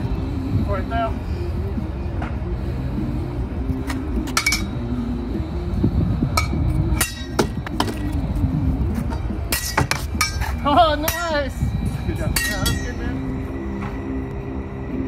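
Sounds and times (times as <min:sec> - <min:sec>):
steel swords clashing: 0:06.4 - 0:07.5, 0:09.5 - 0:11.4, 0:12.2 - 0:13.2.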